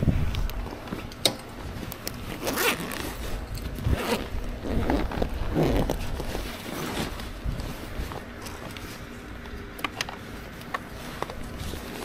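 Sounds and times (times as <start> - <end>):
zipper zipping: 2.3 - 7.4.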